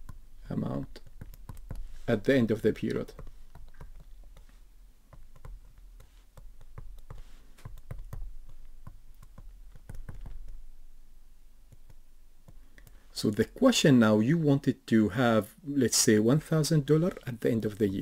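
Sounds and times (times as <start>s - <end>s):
pen tapping on tablet screen: 1.0s - 2.0s, 3.0s - 4.5s, 5.1s - 10.6s.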